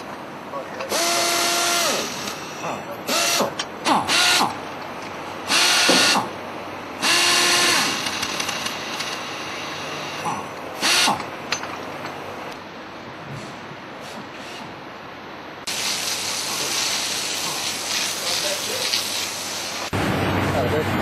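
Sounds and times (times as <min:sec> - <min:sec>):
air motor whine: 0:00.0 - 0:15.8
air exhaust hiss: 0:13.3 - 0:14.8, 0:15.6 - 0:20.8.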